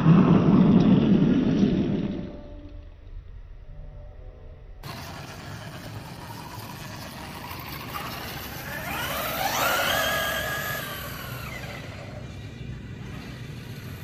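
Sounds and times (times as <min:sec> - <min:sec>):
electric motor whining: 0:04.8 - 0:14.0
steady rushing noise: 0:04.8 - 0:14.0.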